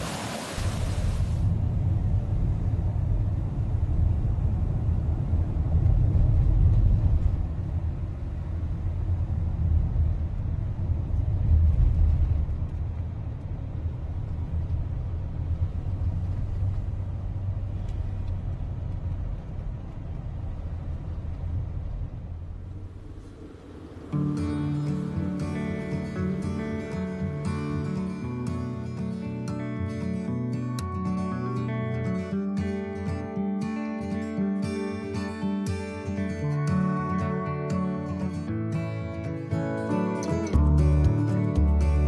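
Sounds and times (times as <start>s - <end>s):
car road and engine rumble: 0.0s - 32.1s, 36.4s - 42.0s.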